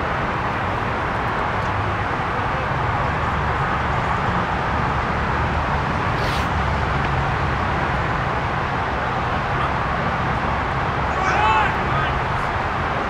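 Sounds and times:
hiss: 6.2 - 6.5.

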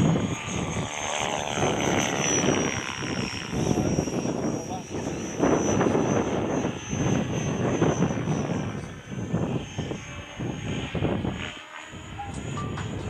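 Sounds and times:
high motor whine: 0.0 - 13.0.

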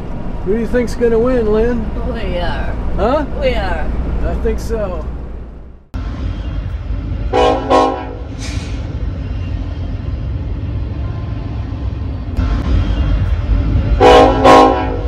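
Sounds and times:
freight train rumbling past: 0.0 - 15.0
train horn blasts: 6.2 - 8.5, 13.2 - 15.0.

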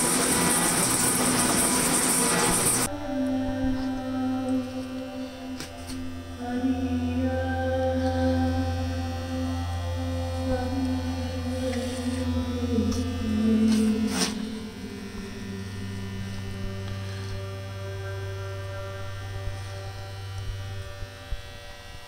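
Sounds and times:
metal shaper cutting: 0.0 - 2.9, 11.5 - 14.8.

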